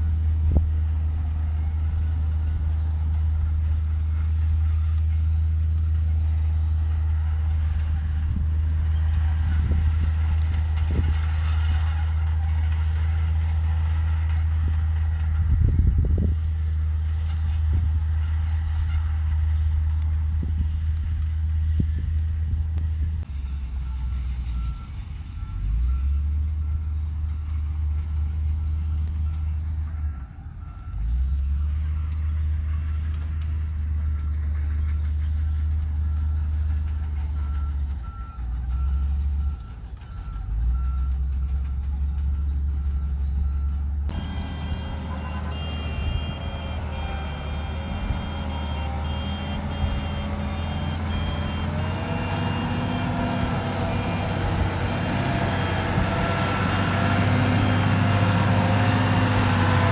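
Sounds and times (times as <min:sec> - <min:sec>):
diesel machinery engine droning: 0:00.0 - 0:59.9
reversing alarm beeping: 0:23.2 - 0:59.9
high-pitched reversing beep: 0:37.2 - 0:56.5.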